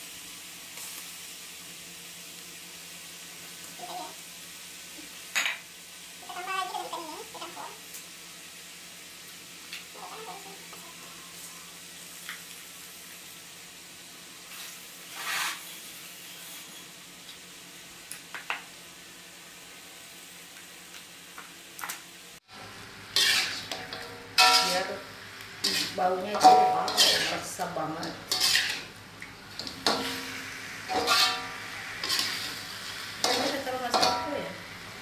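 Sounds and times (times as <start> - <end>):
fish sizzling in a wok: 0.0 - 35.0
metal spatula scraping wok: 14.5 - 16.9, 23.1 - 34.4.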